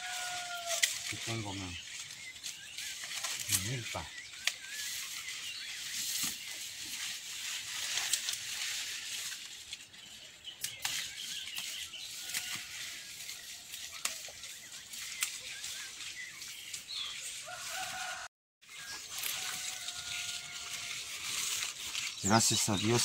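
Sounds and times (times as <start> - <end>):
corn leaves rustling: 0.0 - 23.0
small birds chirping: 0.2 - 23.0
stalks snapping: 0.6 - 1.4, 2.8 - 3.7, 10.6 - 12.7, 13.7 - 15.4.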